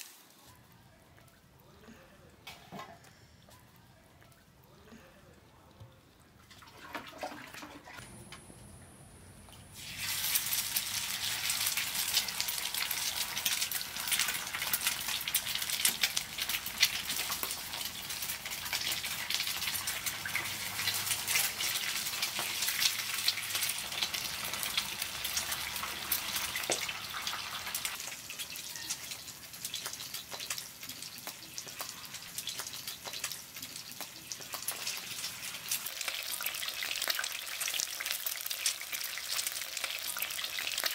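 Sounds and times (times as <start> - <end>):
eggs sizzling in oil: 0.0 - 0.6, 9.7 - 40.9.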